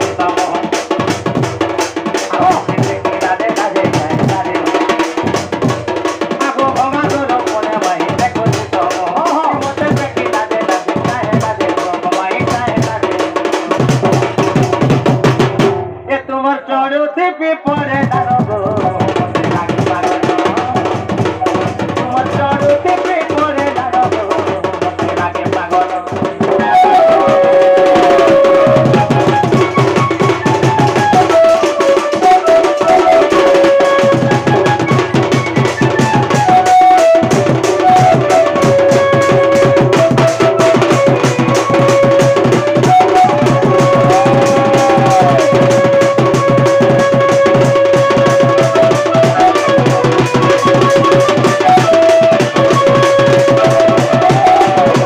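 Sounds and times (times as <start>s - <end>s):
drums in fast rhythm: 0.0s - 16.5s, 17.6s - 55.0s
bending melody line: 26.4s - 55.0s.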